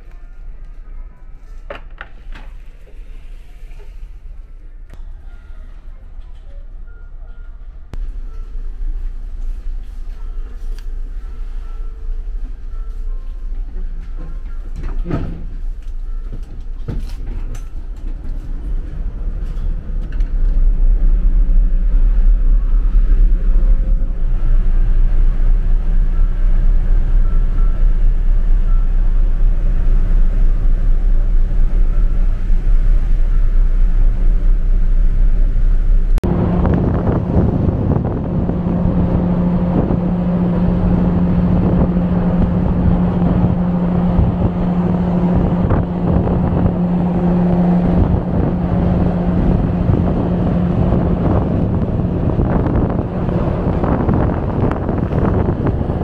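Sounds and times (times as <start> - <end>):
ship engines droning: 0.0 - 56.0
steady ship hum: 0.0 - 56.0
wind buffeting microphone: 16.8 - 56.0.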